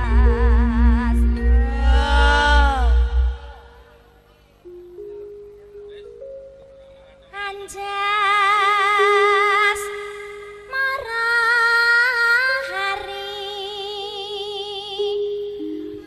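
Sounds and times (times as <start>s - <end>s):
woman singing with vibrato: 0.0s - 4.1s, 7.4s - 15.6s
instrumental accompaniment: 0.0s - 8.2s.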